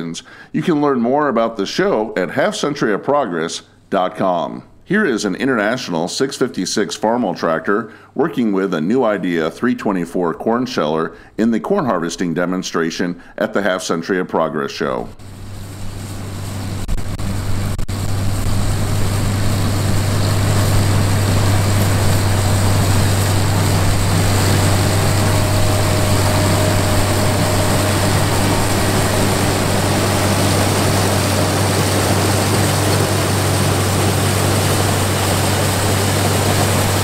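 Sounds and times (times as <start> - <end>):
corn picker mechanical noise: 15.2 - 37.0
tractor engine droning: 15.2 - 37.0.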